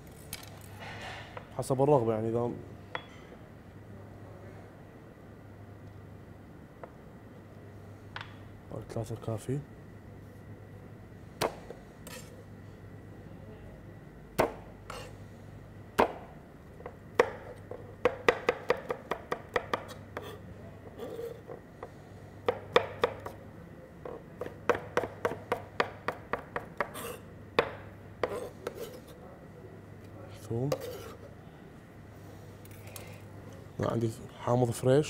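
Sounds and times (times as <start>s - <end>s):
knife chopping on cutting board: 17.2s - 20.4s, 22.4s - 23.4s, 24.0s - 29.1s.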